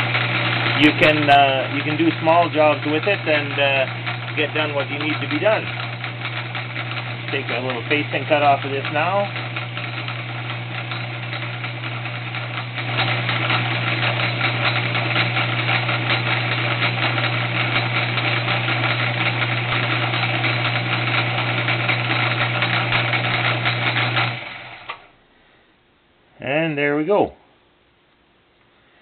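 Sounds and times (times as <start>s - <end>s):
mechanical rattle: 0.0s - 25.1s
milling machine running: 0.0s - 25.1s.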